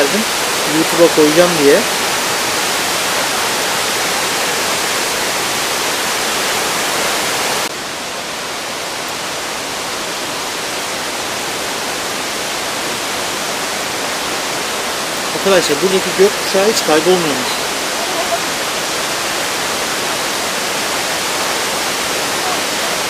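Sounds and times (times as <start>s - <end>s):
waterfall roaring: 0.0s - 23.0s.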